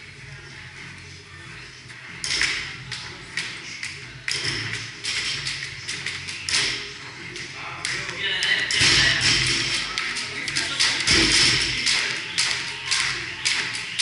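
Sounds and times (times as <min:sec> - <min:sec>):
indistinct chatter: 0:00.0 - 0:14.0.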